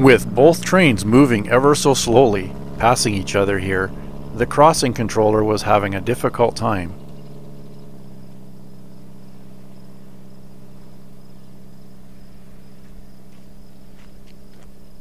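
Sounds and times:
diesel locomotive engine drone: 0:00.0 - 0:15.0
crickets chirping: 0:07.0 - 0:15.0.

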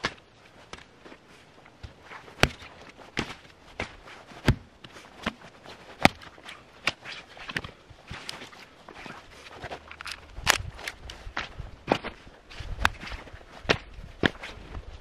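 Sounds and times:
hatchet splitting log: 0:03.2 - 0:05.4.

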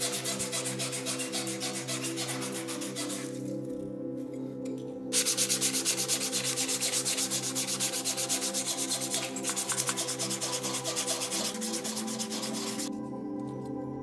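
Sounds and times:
sandpaper rubbing on metal: 0:00.0 - 0:03.4, 0:05.2 - 0:12.9.

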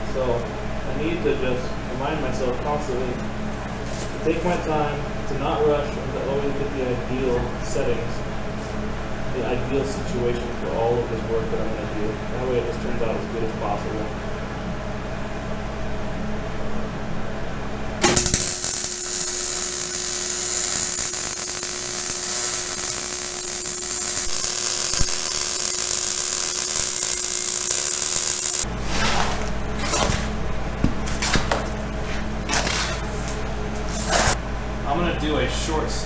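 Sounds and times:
welder arc crackling: 0:18.0 - 0:28.7.

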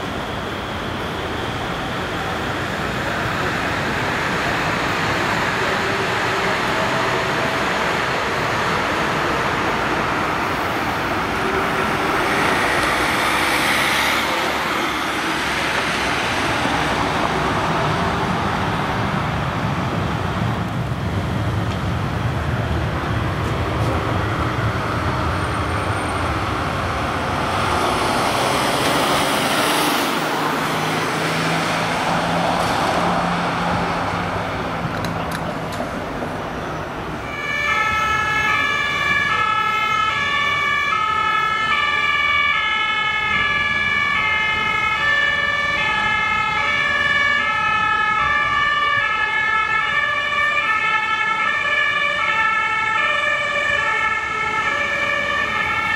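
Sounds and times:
traffic driving past: 0:00.0 - 0:55.9
two-tone ambulance siren: 0:37.2 - 0:55.9.

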